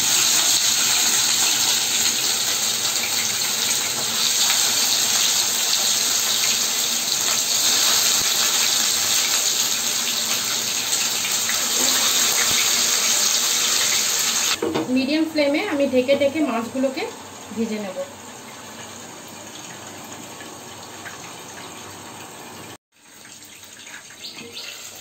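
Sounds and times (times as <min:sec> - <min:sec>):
fish sizzling in hot oil: 0:00.0 - 0:14.6.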